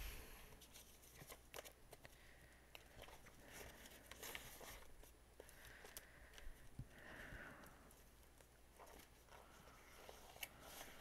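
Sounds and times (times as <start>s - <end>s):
paper and plastic rustling: 0.6s - 6.4s.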